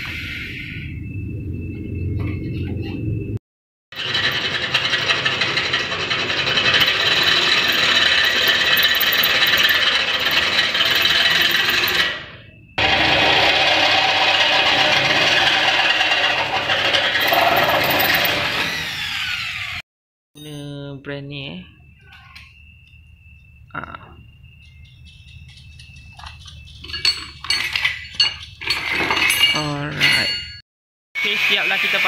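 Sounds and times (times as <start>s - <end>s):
electric drill boring into metal: 4.0s - 19.8s, 31.2s - 32.0s.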